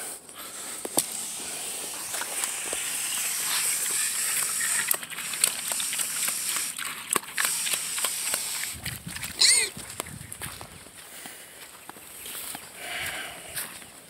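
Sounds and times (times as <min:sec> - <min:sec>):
pigs munching and rooting: 0:00.0 - 0:10.9.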